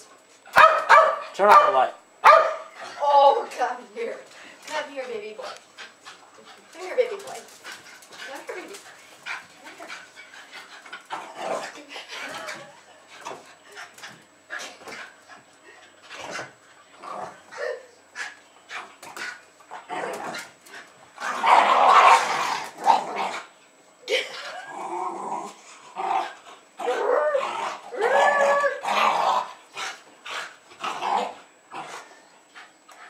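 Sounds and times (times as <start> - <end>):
dogs barking: 0.5 - 2.8.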